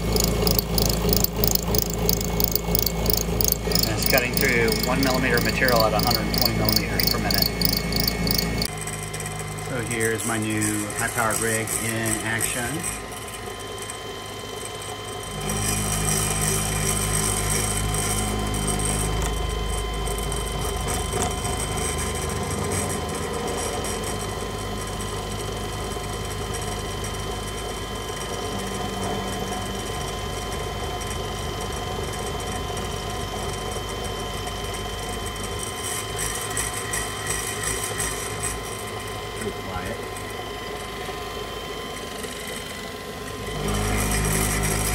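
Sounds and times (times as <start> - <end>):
end mill cutting aluminum: 0.0 - 8.7
low hum: 0.0 - 9.6
milling machine spindle whine: 0.0 - 44.9.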